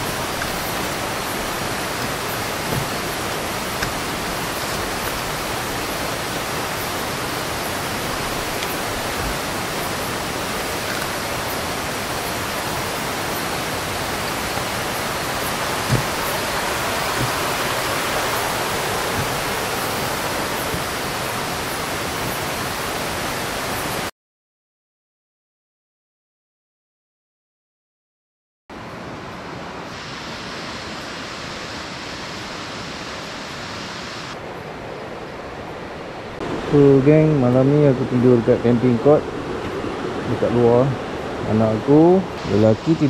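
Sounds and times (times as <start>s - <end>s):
river water flowing over rocks: 0.0s - 24.1s, 28.8s - 43.0s
knock: 15.9s - 16.2s.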